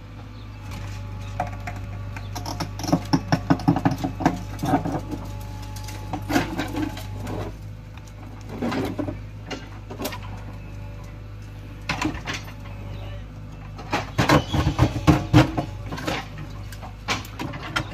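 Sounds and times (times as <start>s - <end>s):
diesel engine running: 0.0s - 17.9s
bucket scraping against stones: 2.4s - 7.7s.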